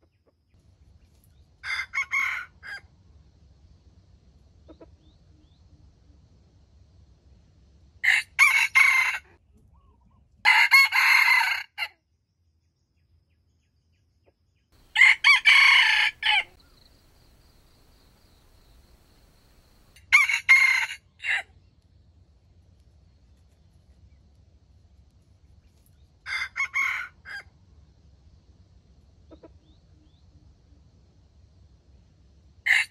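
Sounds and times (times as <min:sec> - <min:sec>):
rooster crowing: 0:01.6 - 0:02.8, 0:08.0 - 0:09.3, 0:10.5 - 0:11.9, 0:14.8 - 0:21.5, 0:26.3 - 0:27.5, 0:32.7 - 0:32.9.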